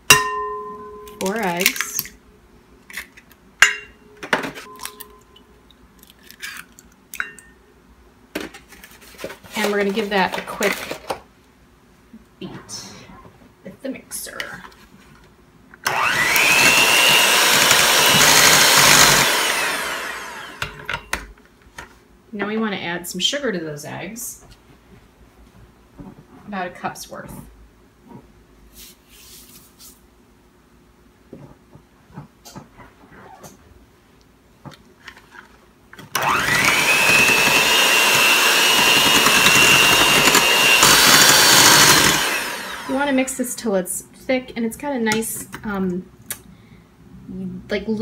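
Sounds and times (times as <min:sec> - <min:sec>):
electric hand mixer whining: 0:15.9 - 0:20.9, 0:36.2 - 0:43.2
beaters whisking in ceramic bowl: 0:36.6 - 0:43.1.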